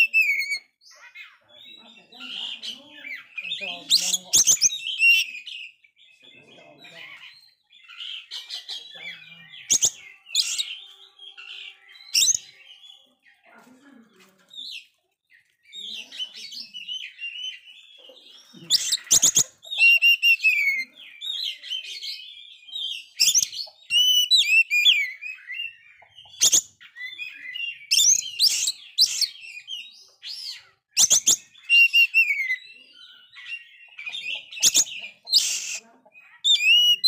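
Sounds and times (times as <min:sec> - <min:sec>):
bird singing whistled trills: 0:00.0 - 0:00.8, 0:09.2 - 0:13.0, 0:16.4 - 0:35.8, 0:36.4 - 0:37.0.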